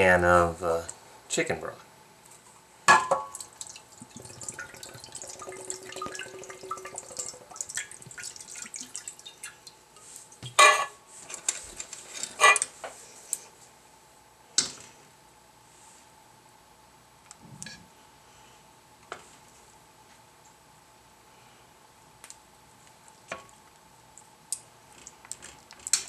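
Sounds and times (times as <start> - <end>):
broth pouring and splashing: 3.3 - 9.8
metal tongs clanking on skillet: 12.2 - 12.7.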